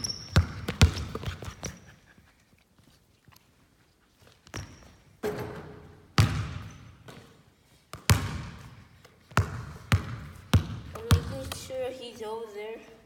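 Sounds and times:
basketball bouncing on hardwood floor: 0.0 - 1.8, 4.5 - 11.7.

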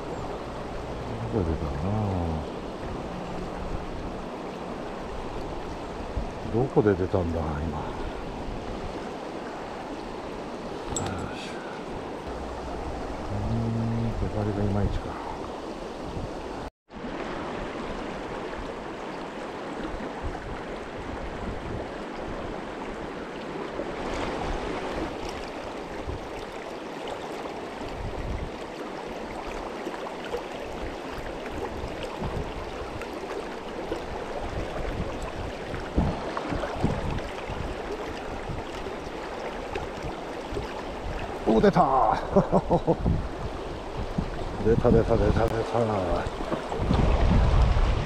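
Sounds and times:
stream water rushing: 0.0 - 48.0.

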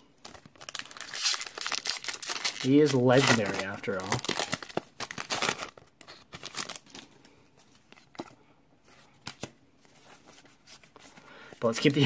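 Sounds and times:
foil wrapper crinkling: 0.3 - 7.0.

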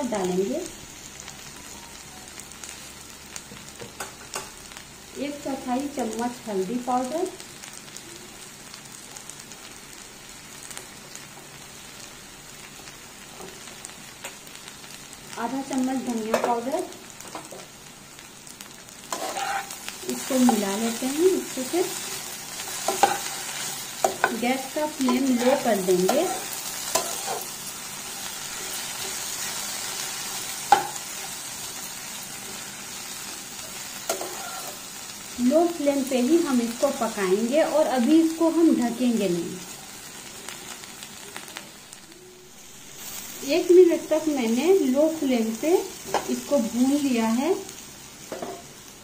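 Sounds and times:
potatoes sizzling in oil: 0.0 - 49.0
spatula stirring in pan: 19.0 - 21.0, 21.8 - 31.5, 33.7 - 34.9.

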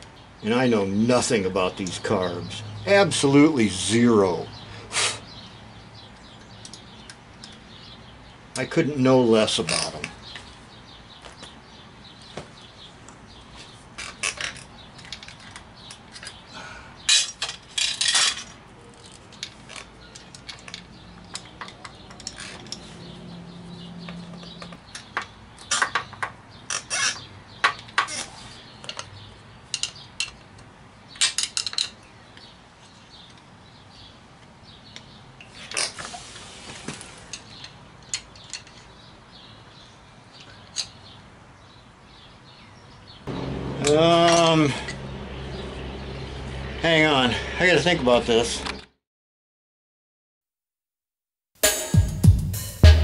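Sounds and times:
hand tools clinking and rattling: 17.1 - 23.2.

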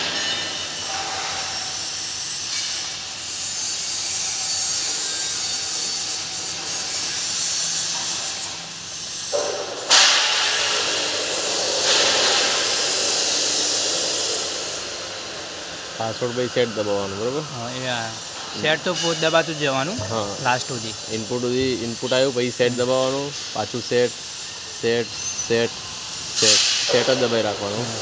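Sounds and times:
hissing rush of air: 8.0 - 28.0.

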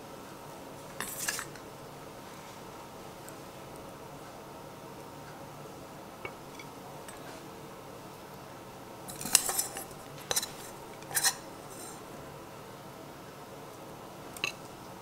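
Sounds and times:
faint steady hum: 0.0 - 15.0
kitchenware clinking and clattering: 1.0 - 1.6, 9.1 - 12.1, 14.4 - 14.7.

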